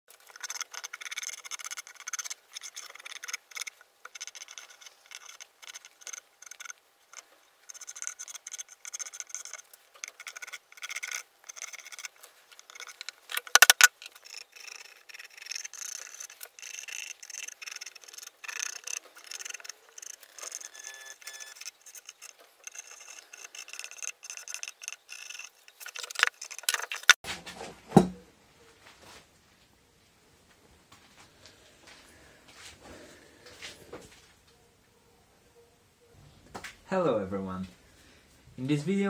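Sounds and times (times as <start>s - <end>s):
charcoal scratching on wooden planks: 0.1s - 27.2s.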